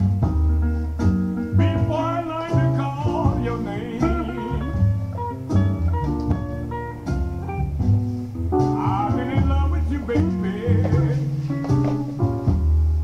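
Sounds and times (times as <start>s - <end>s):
bass line: 0.0s - 13.0s
blues guitar: 0.0s - 13.0s
person singing: 1.8s - 5.1s, 8.7s - 11.4s.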